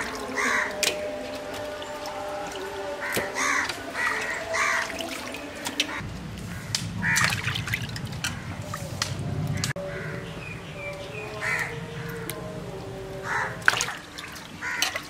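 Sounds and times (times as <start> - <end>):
water splashing in metal pot: 0.0 - 6.0, 6.7 - 9.1, 13.4 - 15.0
crows cawing: 0.0 - 8.9, 9.5 - 15.0.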